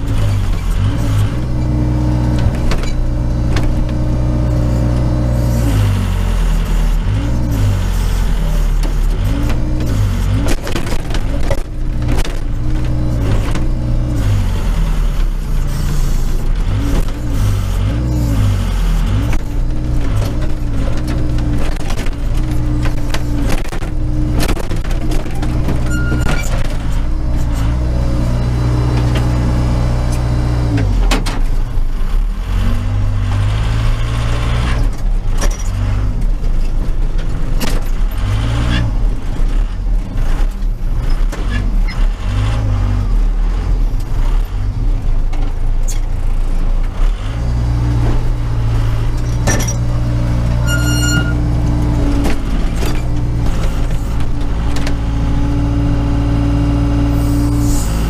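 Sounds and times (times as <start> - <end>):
clanks and rattles: 0.0 - 4.4, 6.7 - 18.2, 19.0 - 29.5, 30.1 - 32.3, 34.5 - 42.7, 47.8 - 55.6
diesel engine running: 0.0 - 58.0.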